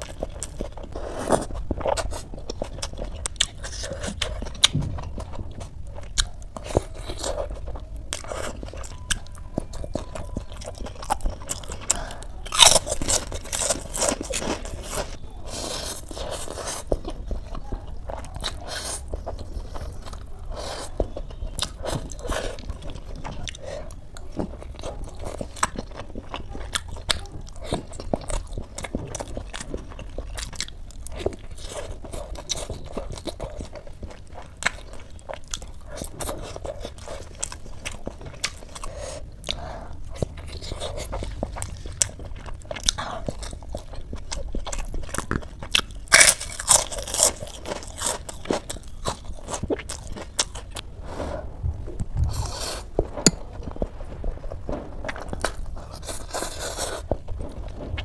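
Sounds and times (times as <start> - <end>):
person chewing with crunches: 0.0 - 58.0.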